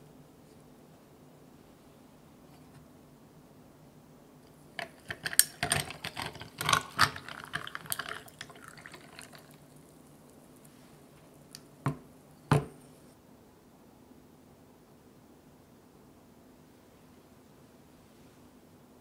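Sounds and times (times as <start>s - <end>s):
ice cracking and clinking: 4.8s - 9.8s
tea pouring into glass: 4.8s - 9.9s
glass teapot set down on wood: 11.9s - 12.8s.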